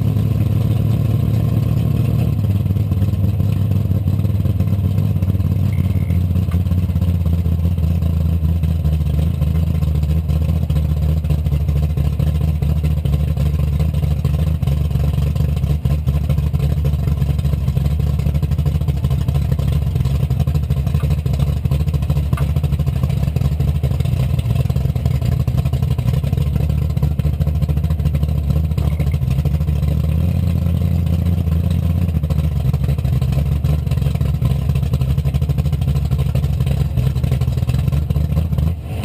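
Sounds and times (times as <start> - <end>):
car engine and exhaust drone: 0.0 - 39.0
road noise: 36.6 - 39.0.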